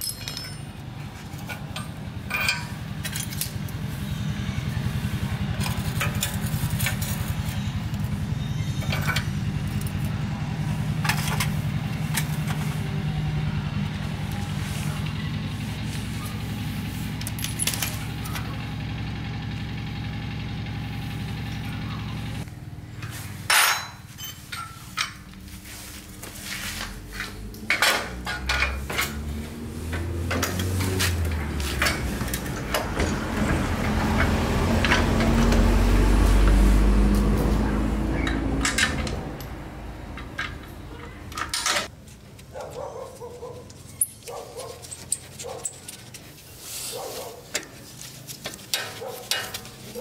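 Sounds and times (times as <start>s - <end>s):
tools clinking and knocking: 0.0s - 3.6s, 8.8s - 10.0s, 17.2s - 18.5s, 23.5s - 25.4s, 27.1s - 29.3s, 29.9s - 35.6s, 38.2s - 41.9s, 48.4s - 50.0s
motorbike engine running: 1.6s - 23.4s, 25.4s - 41.6s, 42.5s - 50.0s.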